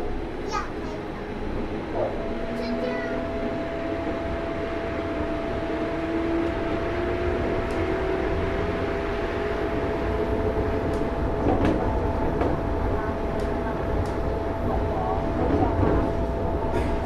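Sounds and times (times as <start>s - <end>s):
metro train rumble: 0.0s - 17.0s
train whine: 0.0s - 17.0s.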